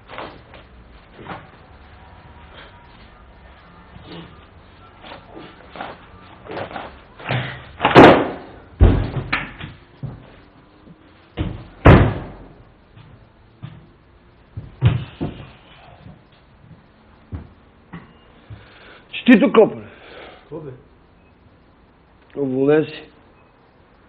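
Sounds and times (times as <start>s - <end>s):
door banging and slamming: 7.3s - 9.8s, 11.4s - 12.6s
heavy low thud: 8.0s - 9.4s, 11.4s - 12.6s.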